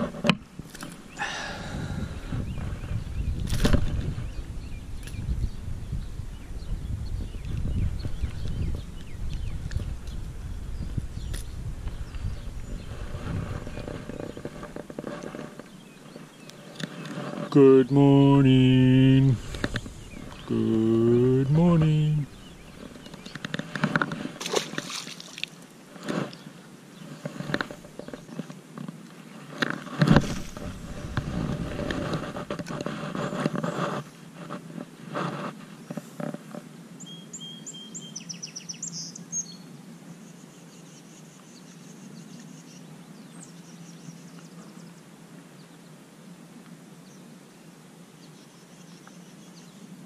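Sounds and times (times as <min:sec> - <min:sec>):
fishing rod handling noise: 0:00.0 - 0:01.0, 0:22.8 - 0:26.4, 0:27.2 - 0:34.7
fish splashing into water: 0:24.4 - 0:25.6.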